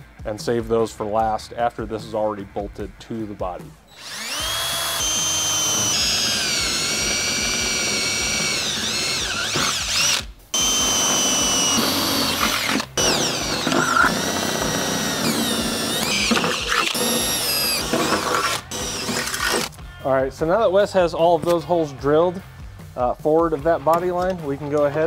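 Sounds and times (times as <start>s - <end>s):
cordless drill whining: 3.9s - 19.8s.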